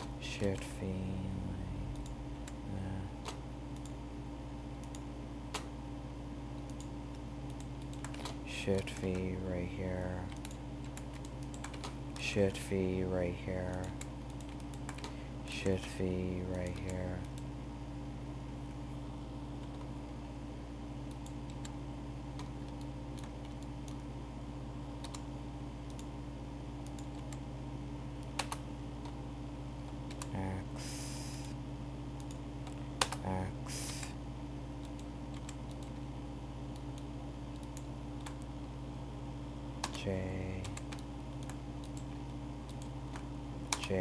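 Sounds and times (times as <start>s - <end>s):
steady low hum: 0.0s - 44.0s
keyboard and mouse clicks: 6.6s - 9.3s, 10.0s - 12.3s, 13.6s - 15.8s, 16.5s - 17.5s, 21.0s - 24.1s, 25.0s - 26.1s, 26.8s - 27.4s, 28.2s - 29.2s, 29.8s - 30.4s, 32.2s - 33.4s, 34.8s - 36.0s, 36.7s - 38.7s, 39.8s - 44.0s.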